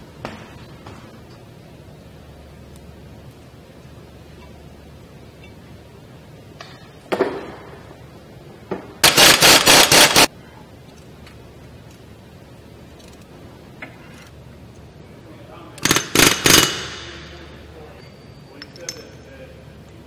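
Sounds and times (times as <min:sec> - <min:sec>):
impact wrench rattling: 0:15.8 - 0:17.2.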